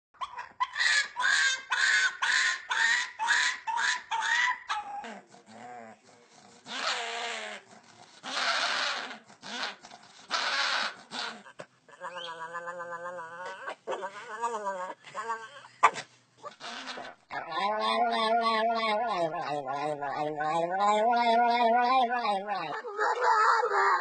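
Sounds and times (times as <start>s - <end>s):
dog making rough breathy noises: 5.1s - 11.6s
puppy howl-like calls: 17.4s - 24.0s.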